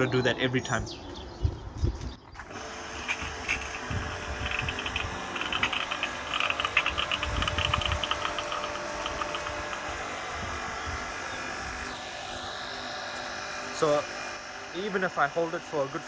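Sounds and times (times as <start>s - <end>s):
pressure washer motor humming: 2.4s - 16.0s
water spraying: 2.4s - 16.0s
crackling clicks: 4.4s - 9.9s.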